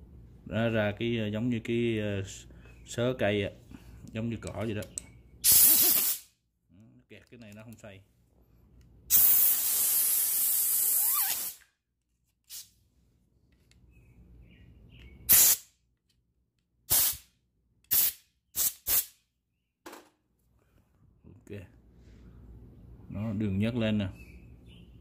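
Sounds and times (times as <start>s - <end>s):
compressed air blow gun blasting: 5.4s - 6.2s, 9.1s - 11.6s, 15.3s - 15.6s, 16.9s - 17.2s, 17.9s - 19.1s.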